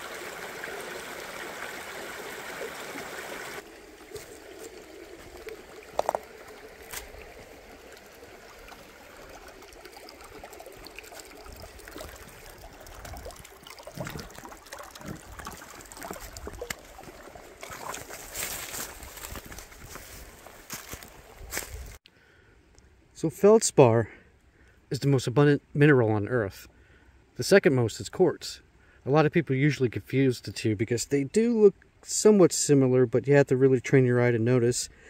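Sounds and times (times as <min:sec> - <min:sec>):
creek trickling: 0:00.0 - 0:22.0.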